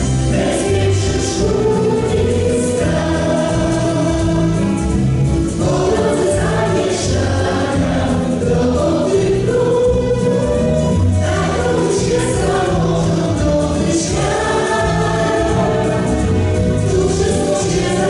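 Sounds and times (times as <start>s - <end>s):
group of people singing: 0.0s - 18.0s.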